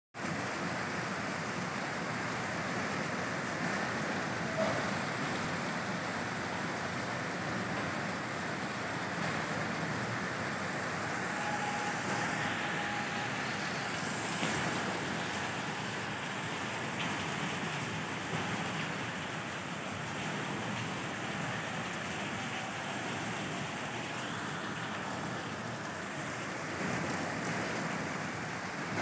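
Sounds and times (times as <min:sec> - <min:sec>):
rain falling on rooftops: 0:00.2 - 0:29.0.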